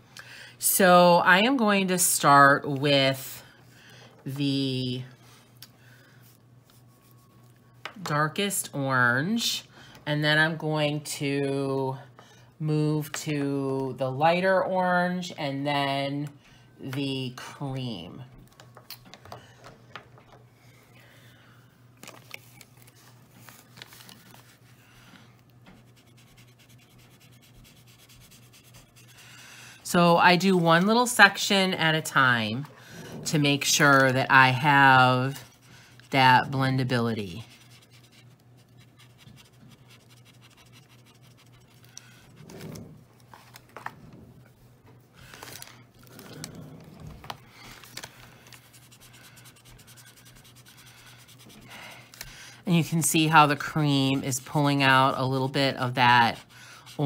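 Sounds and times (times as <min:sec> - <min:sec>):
marker scratching over paper: 0:25.7 - 0:29.4, 0:33.7 - 0:42.4, 0:48.6 - 0:51.7.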